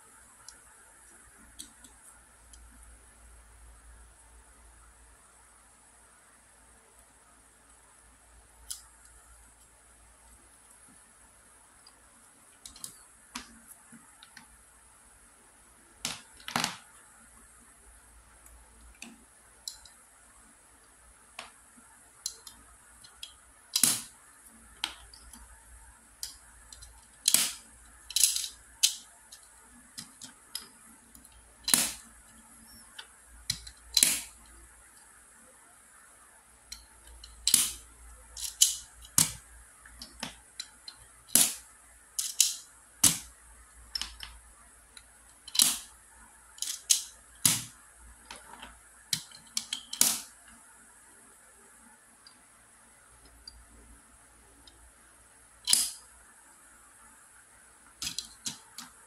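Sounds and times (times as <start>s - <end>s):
plastic cubes clacking: 26.2s - 30.6s, 38.4s - 39.4s, 42.2s - 43.3s.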